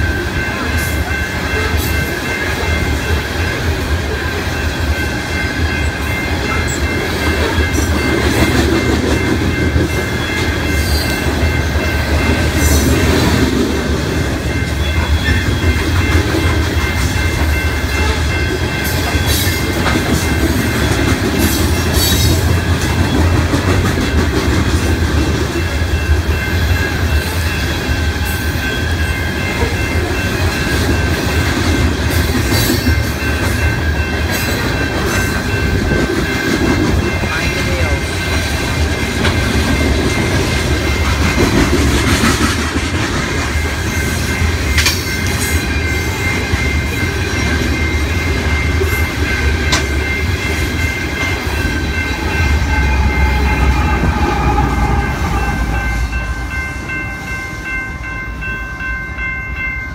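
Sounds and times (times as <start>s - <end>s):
train cars rumbling past: 0.0s - 59.9s
wheels clicking over rail joints: 44.7s - 45.5s.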